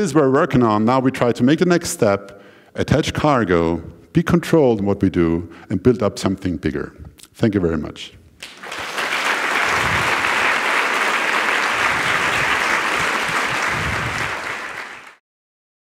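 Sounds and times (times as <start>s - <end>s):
audience applauding: 8.4s - 15.2s.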